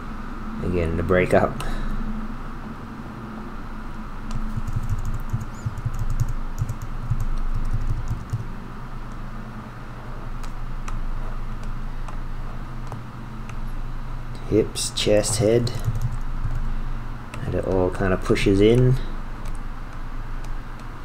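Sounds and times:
steady low hum: 0:00.0 - 0:21.0
computer keyboard keys tapping: 0:04.3 - 0:08.5, 0:12.8 - 0:13.6, 0:15.3 - 0:16.7, 0:18.7 - 0:19.6.

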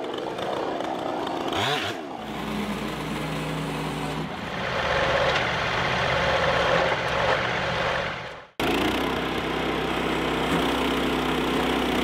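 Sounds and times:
chainsaw revving: 0:00.0 - 0:04.2
loud rough engine noise: 0:00.0 - 0:12.0.

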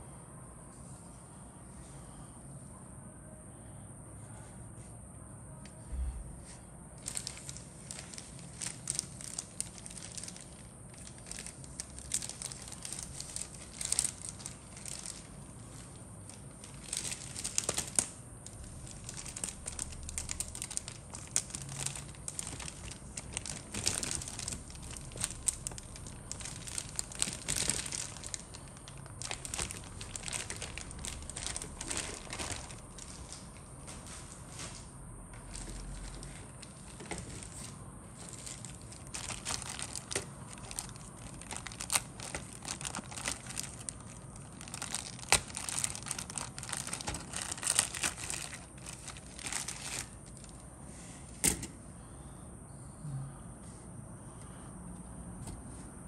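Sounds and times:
plastic packaging crinkling: 0:07.0 - 0:34.7, 0:35.4 - 0:50.6.

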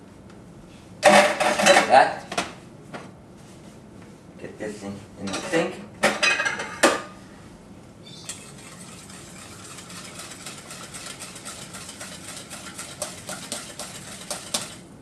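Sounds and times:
whisk ticking against a saucepan: 0:08.8 - 0:14.8.

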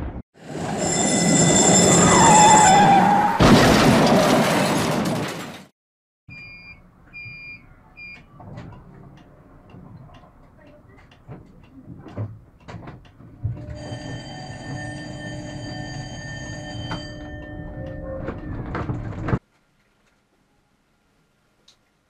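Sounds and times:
tram warning bell ringing: 0:00.5 - 0:02.3, 0:13.6 - 0:19.1
sharp clicks and knocks: 0:08.4 - 0:13.7.

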